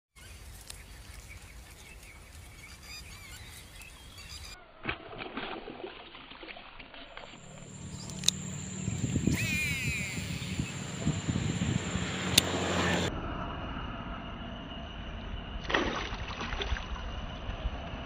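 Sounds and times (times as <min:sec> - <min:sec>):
bird chirps: 0:00.2 - 0:04.8, 0:07.4 - 0:13.1.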